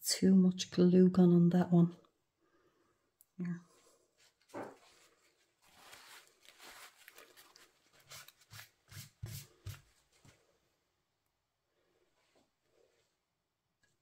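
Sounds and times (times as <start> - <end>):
paper rustling: 4.2 - 10.4.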